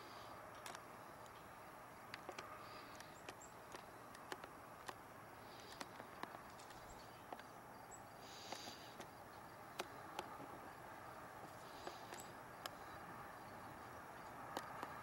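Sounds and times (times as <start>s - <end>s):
faint outdoor hiss: 0.0s - 15.0s
sharp clicks: 0.5s - 1.4s, 2.1s - 5.0s, 5.6s - 7.5s, 8.4s - 10.6s.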